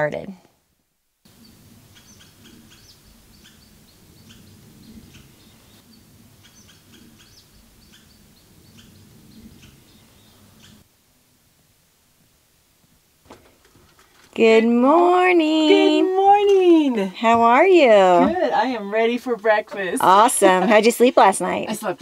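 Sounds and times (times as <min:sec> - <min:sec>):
small birds chirping: 0:01.3 - 0:10.9.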